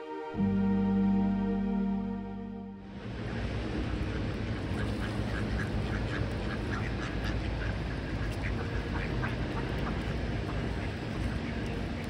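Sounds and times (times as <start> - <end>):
steady low rumble: 0.4 - 12.0
ducks quacking: 4.7 - 12.0.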